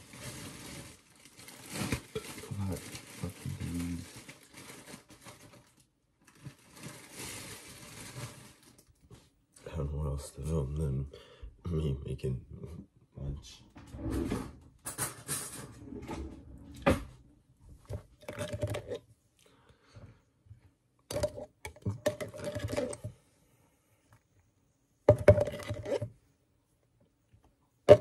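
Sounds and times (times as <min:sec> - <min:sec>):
rustling food handling: 0:00.0 - 0:09.4, 0:21.1 - 0:23.2
utensils clinking and scraping: 0:21.1 - 0:23.1.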